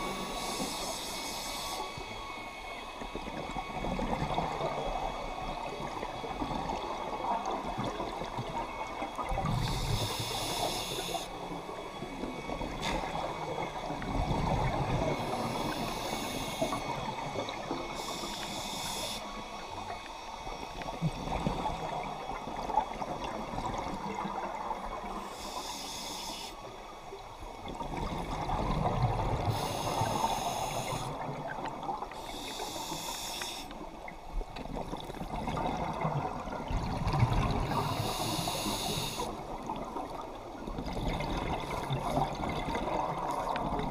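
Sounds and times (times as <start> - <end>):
regulator inhale hiss: 0.0 - 2.9, 9.4 - 11.4, 14.6 - 22.0, 25.1 - 27.1, 29.4 - 31.4, 32.0 - 34.1, 37.6 - 39.6
underwater noise: 0.0 - 43.9
exhaled bubbles rumbling: 27.7 - 29.5, 34.7 - 37.9, 39.5 - 43.9.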